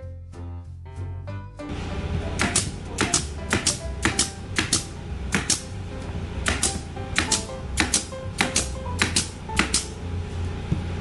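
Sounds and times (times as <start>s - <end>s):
pneumatic nail gun firing: 2.4s - 5.8s, 6.4s - 10.0s.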